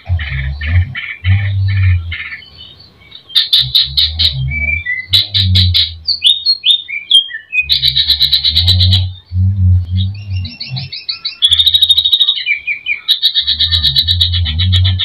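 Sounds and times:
bird singing: 0.0s - 15.0s.

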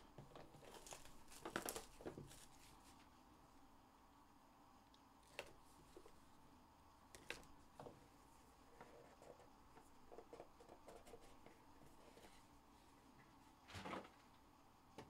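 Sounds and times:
wrapper rustling: 0.6s - 2.9s.

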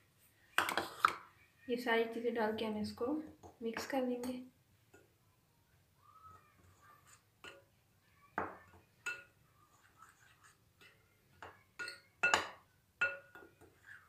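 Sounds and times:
spoon clinking glass bowl: 8.4s - 9.4s, 10.8s - 13.7s.

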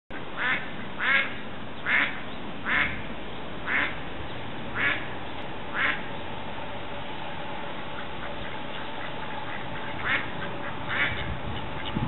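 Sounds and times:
duck quacking: 0.1s - 3.0s, 3.6s - 4.0s, 4.7s - 5.1s, 5.7s - 6.0s, 8.0s - 12.0s.

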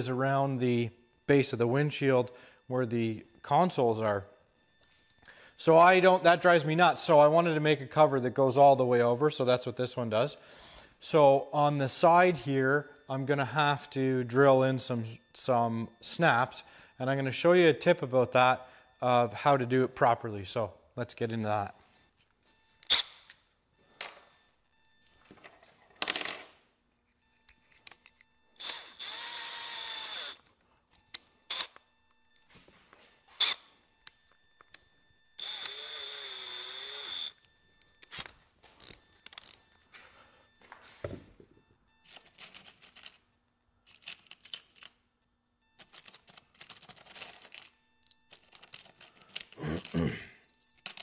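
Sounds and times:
cordless drill whine: 21.9s - 25.5s, 27.2s - 42.8s.

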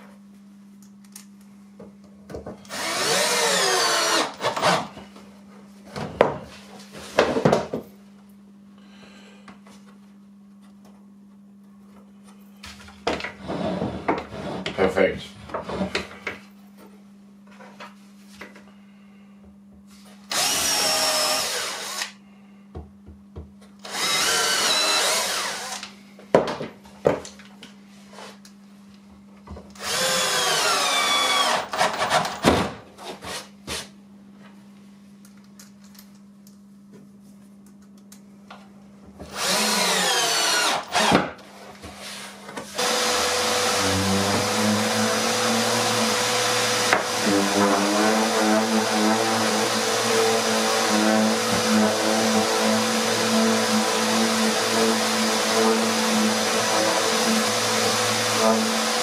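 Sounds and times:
cordless drill driving screws: 2.7s - 4.9s, 20.3s - 22.2s, 23.8s - 25.8s, 29.8s - 32.3s, 39.3s - 41.2s, 42.7s - 59.0s
random orbital sander: 42.8s - 59.0s.

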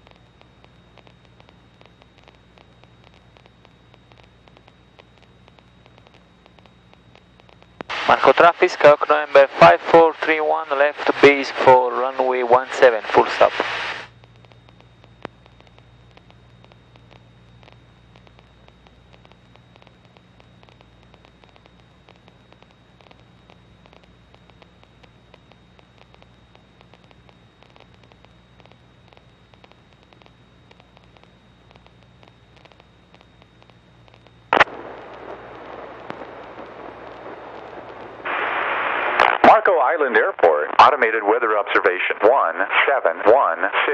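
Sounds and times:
radio static hiss: 0.0s - 43.9s
steady low hum: 0.0s - 43.9s
sharp pop: 34.6s - 34.9s.

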